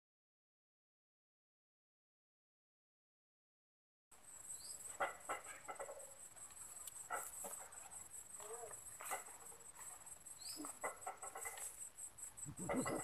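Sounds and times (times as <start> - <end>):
insects droning: 4.1 - 13.0
faint chirps: 4.2 - 13.0.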